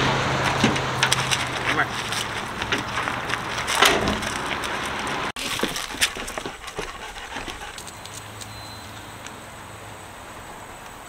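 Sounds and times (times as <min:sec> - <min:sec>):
shoes tapping on wooden boardwalk: 0:00.4 - 0:08.3
footsteps on gravel: 0:00.4 - 0:08.5.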